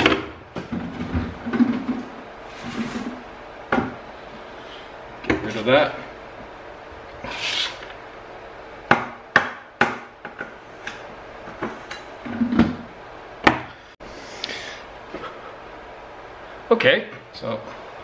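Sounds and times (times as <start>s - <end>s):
short scrape: 7.2s - 7.9s
sharp knocks and taps of tools: 8.9s - 12.6s.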